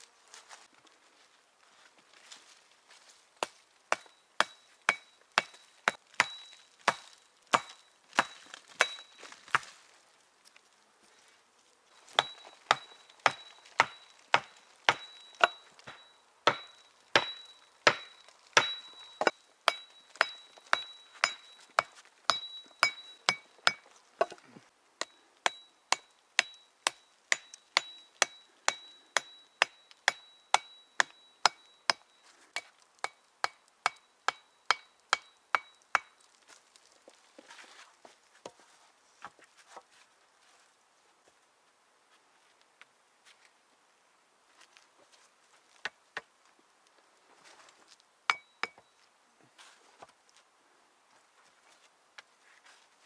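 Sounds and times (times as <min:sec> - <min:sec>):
hand tool chopping wood: 0:03.4 - 0:09.7, 0:12.0 - 0:24.4, 0:25.0 - 0:36.2, 0:48.3 - 0:48.8.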